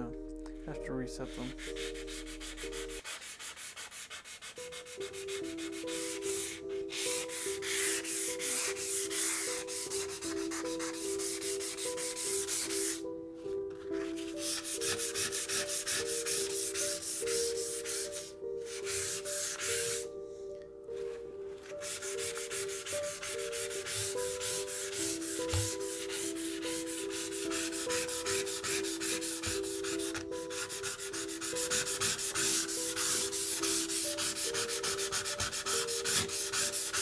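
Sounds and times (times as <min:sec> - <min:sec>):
soft background music: 0:00.0 - 0:37.0
sandpaper rubbing on steel blade: 0:01.4 - 0:13.0, 0:21.8 - 0:37.0.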